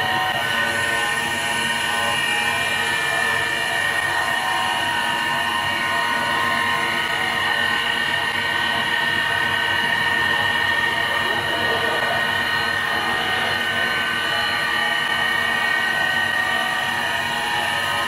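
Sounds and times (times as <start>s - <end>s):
cutter on wood: 0.0s - 18.0s
lathe machine whine: 0.0s - 18.0s.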